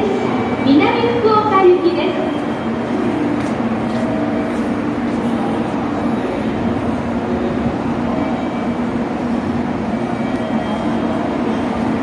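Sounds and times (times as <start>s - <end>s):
train equipment hum: 0.0s - 12.0s.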